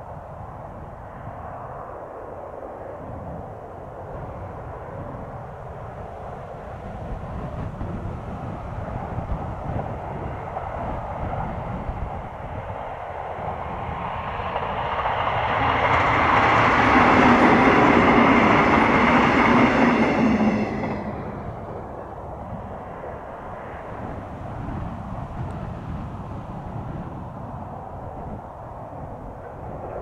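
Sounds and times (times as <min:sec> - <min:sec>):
electric train passing: 0:04.0 - 0:30.0.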